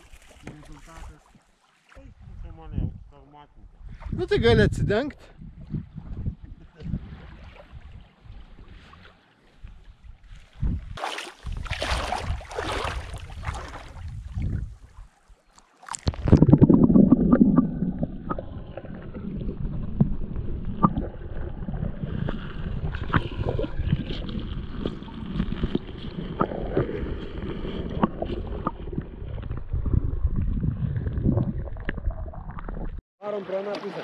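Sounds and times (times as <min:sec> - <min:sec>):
camera plunging into water: 0:10.6 - 0:14.7, 0:15.5 - 0:33.0
underwater clicks: 0:15.5 - 0:33.0
muffled underwater rumble and gurgle: 0:16.1 - 0:33.0.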